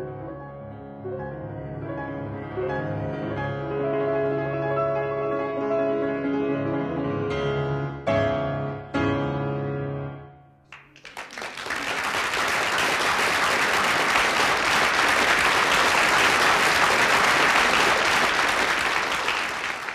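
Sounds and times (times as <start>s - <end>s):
audience applauding: 10.7s - 19.9s.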